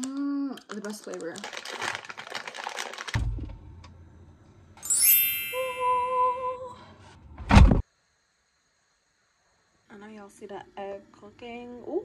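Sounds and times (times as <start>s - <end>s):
ringing ding: 4.8s - 6.5s
shimmering chime: 4.8s - 6.6s
wavering two-note tone: 4.8s - 6.7s
low thud: 7.4s - 7.8s
short thump: 7.4s - 7.8s.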